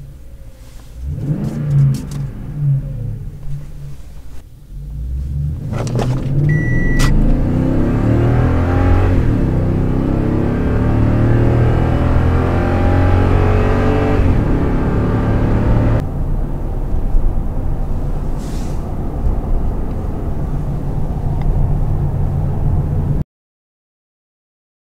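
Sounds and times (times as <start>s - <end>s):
road noise: 0.0s - 23.2s
truck engine under throttle: 4.7s - 23.2s.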